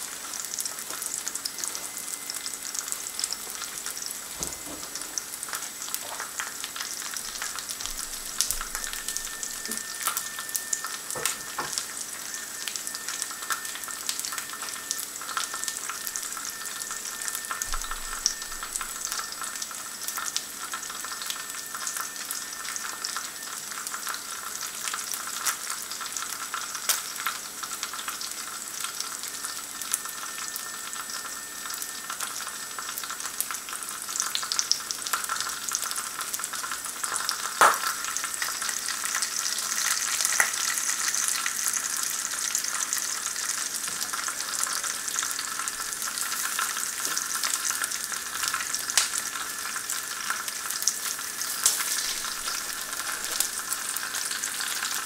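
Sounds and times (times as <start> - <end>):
food sizzling in a frying pan: 0.0 - 55.0.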